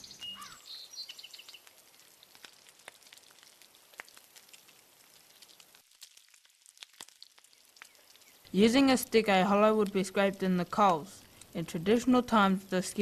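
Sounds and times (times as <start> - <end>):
wood fire crackling: 0.0 - 13.0
soft hiss: 7.5 - 13.0.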